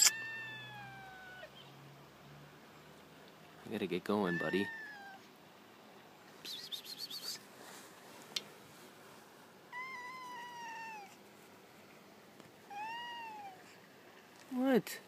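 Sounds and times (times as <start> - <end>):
cat meowing: 0.0 - 1.6, 4.2 - 5.2, 9.7 - 11.2, 12.7 - 13.6
rapid high chirps: 6.4 - 7.4.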